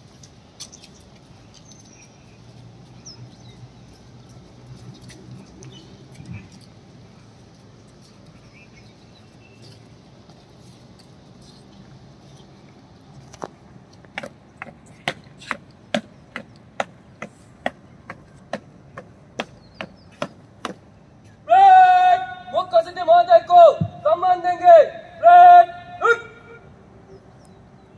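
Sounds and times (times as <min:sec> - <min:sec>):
man calling out loudly: 0:21.4 - 0:26.6.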